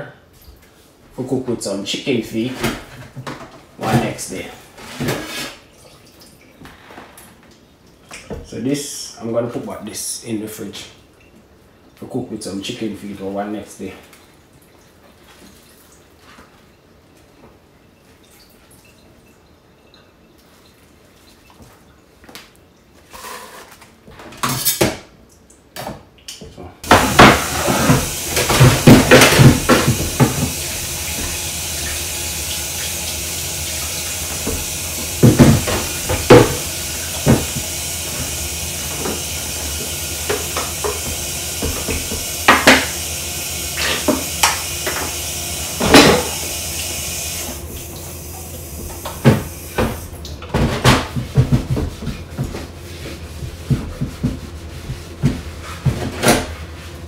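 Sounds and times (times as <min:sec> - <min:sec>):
cutting board being scrubbed: 0:26.8 - 0:33.1, 0:51.0 - 0:57.0
board and dishes clattering: 0:26.9 - 0:30.6
tap running into a steel sink: 0:33.8 - 0:43.0.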